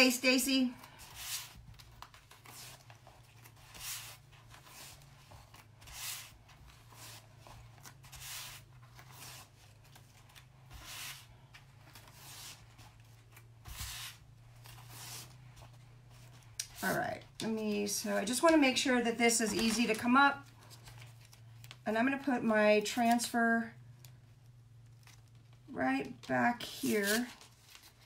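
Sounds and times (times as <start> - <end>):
low steady hum: 0.0 - 28.0
fingertips swishing on stencil: 0.8 - 17.1.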